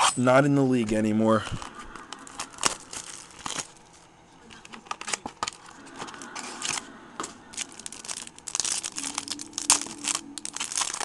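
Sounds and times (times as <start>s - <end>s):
foil wrapper crinkling: 1.6s - 4.0s, 4.6s - 5.7s, 7.5s - 11.0s.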